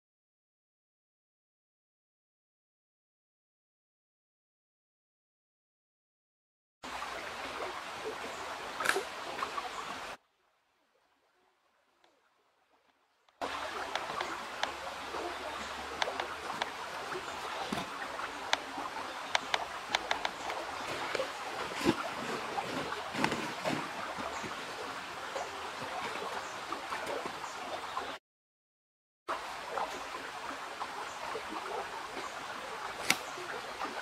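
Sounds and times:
river water rushing: 6.8 - 10.2, 13.4 - 28.2
twigs snapping underfoot: 33.0 - 33.3.

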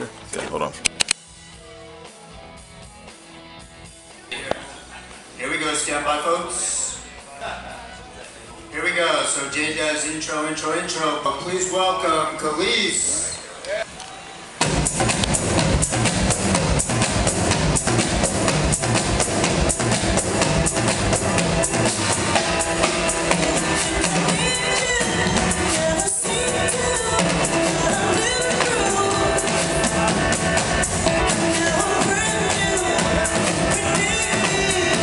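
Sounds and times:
backing track: 0.0 - 35.0
drum kit playing fast beat: 14.6 - 35.0
woman singing: 23.3 - 35.0.

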